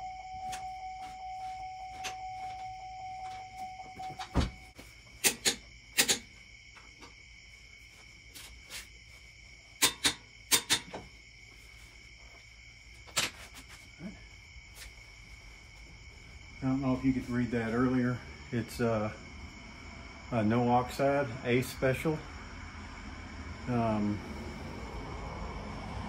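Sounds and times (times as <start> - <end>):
crickets chirping: 0.0 - 26.0
hand tools clicking and knocking: 5.2 - 6.3, 9.8 - 11.0.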